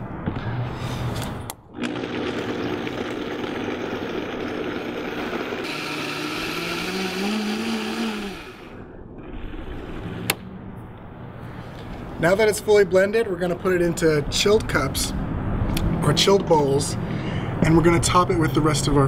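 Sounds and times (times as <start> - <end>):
blender motor running: 1.8 - 8.8.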